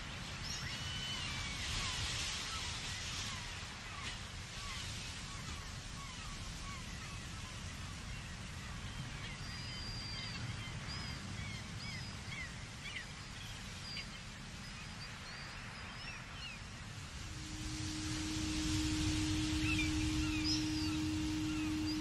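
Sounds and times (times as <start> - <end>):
low rumble: 16.8 - 22.0
bird chirps and whistles: 17.2 - 22.0.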